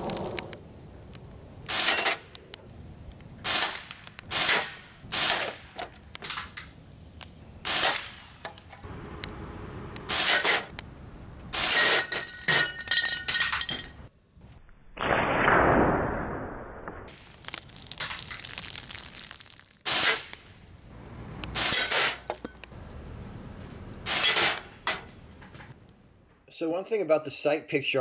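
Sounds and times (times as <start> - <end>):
pellets hitting metal targets: 11.6 - 14.0.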